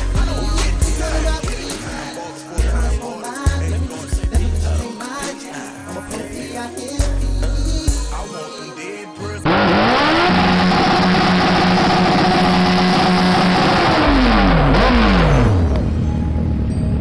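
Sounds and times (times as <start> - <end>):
motorcycle engine revving: 9.5 - 16.0.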